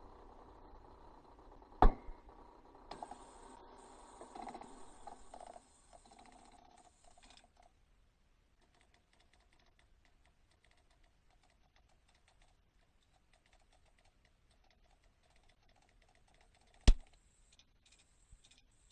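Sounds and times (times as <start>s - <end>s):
loud sharp click: 16.8s - 17.2s.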